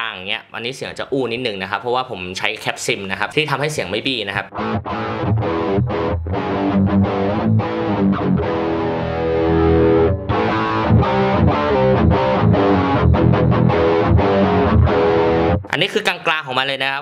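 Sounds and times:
distorted electric guitar riff: 0:04.5 - 0:15.7.

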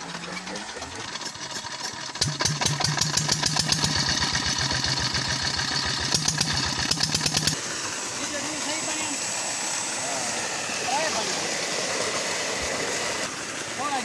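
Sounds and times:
diesel engine knocking: 0:00.0 - 0:07.6.

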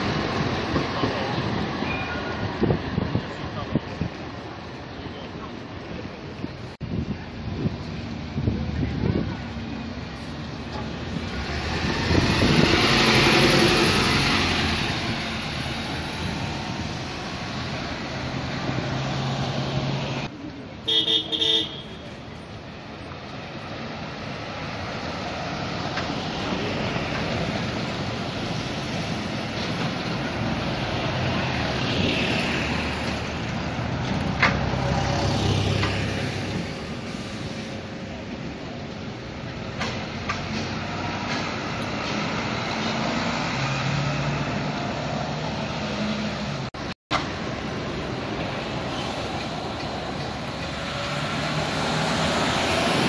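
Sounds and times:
bus engines pulling away: 0:00.0 - 0:20.8, 0:22.0 - 0:53.0
street traffic noise: 0:00.0 - 0:53.0
passers-by talking: 0:00.3 - 0:11.5.

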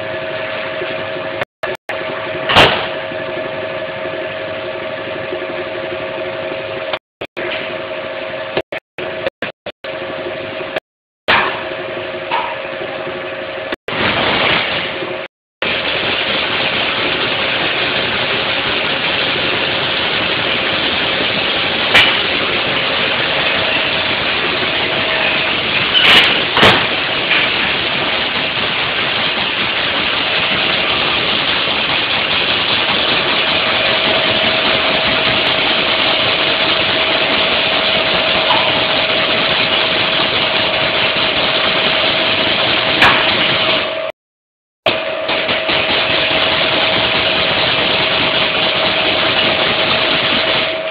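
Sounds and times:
machinery din: 0:13.9 - 0:44.1.

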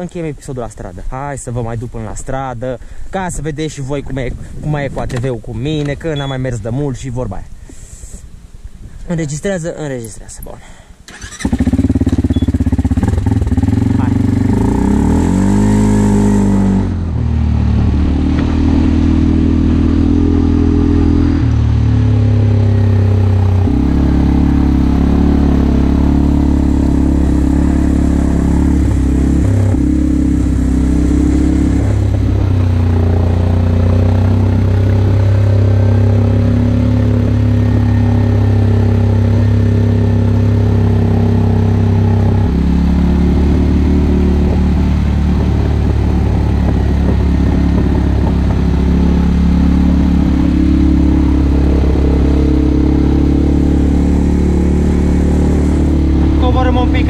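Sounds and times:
quad bike engine running: 0:11.1 - 0:57.0.

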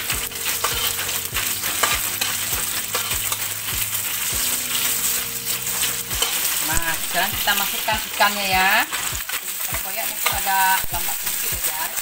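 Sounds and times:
spatula scraping a wok: 0:00.0 - 0:12.0
vegetables sizzling in hot oil: 0:00.0 - 0:12.0.

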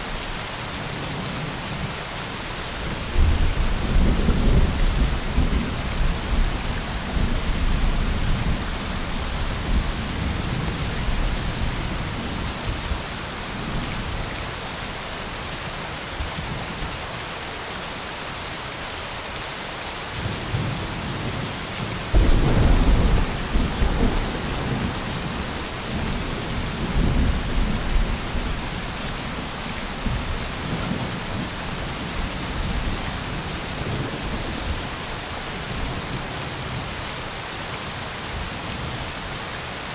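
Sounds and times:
steady rain: 0:00.0 - 0:39.9
rolling thunder: 0:22.1 - 0:34.7
loud thunderclap: 0:22.2 - 0:28.8.

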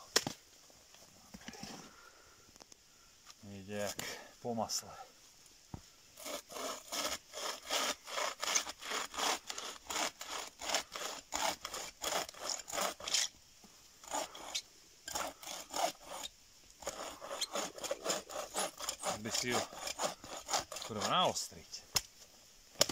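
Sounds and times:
saw rasping through log: 0:06.2 - 0:13.3, 0:14.0 - 0:21.6.

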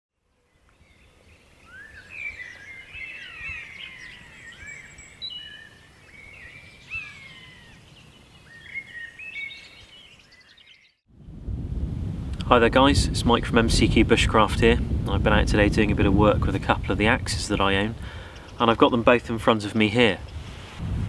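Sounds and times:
birds chirping and whistling: 0:00.6 - 0:11.0, 0:17.6 - 0:18.6.

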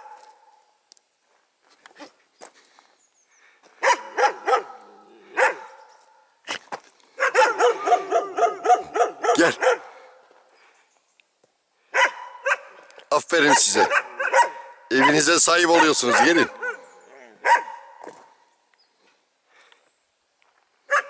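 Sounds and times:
dogs barking: 0:03.8 - 0:06.2, 0:07.2 - 0:10.3, 0:11.9 - 0:18.4.

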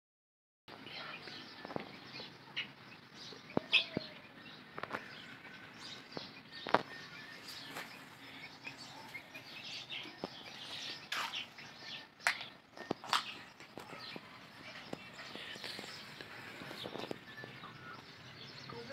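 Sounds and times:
birds chirping: 0:00.7 - 0:18.9.

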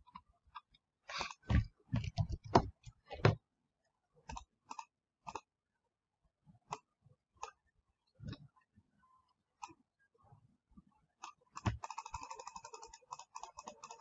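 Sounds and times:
laptop keyboard typing: 0:11.2 - 0:14.0.

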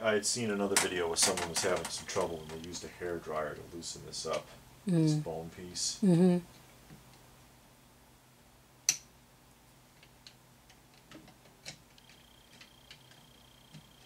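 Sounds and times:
small hard parts clicking: 0:00.7 - 0:02.8, 0:10.0 - 0:14.0.

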